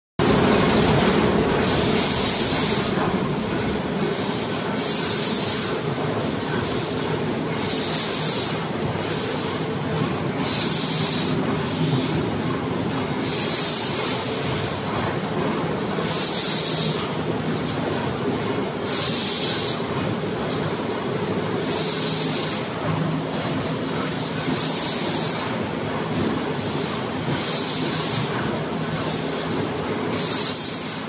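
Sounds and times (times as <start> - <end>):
machine humming: 0.2 - 31.0
air hiss: 10.4 - 11.8, 16.0 - 17.0, 21.7 - 22.7, 30.1 - 31.0.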